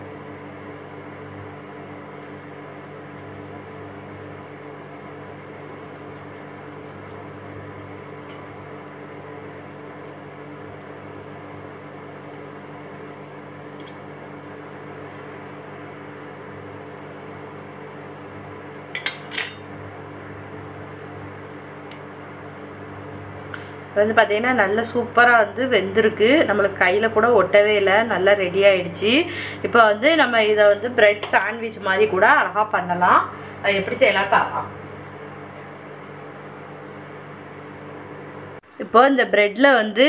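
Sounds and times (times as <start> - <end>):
steady low hum: 0.0 - 40.0
knife clinking on steel plate: 19.0 - 19.6.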